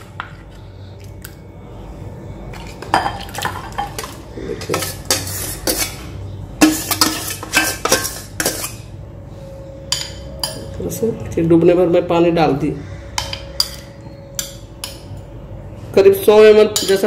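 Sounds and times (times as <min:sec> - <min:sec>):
metal spoon clinking on bowls: 0:02.5 - 0:06.0, 0:06.6 - 0:08.9, 0:09.8 - 0:10.9, 0:13.1 - 0:15.3, 0:16.4 - 0:17.0.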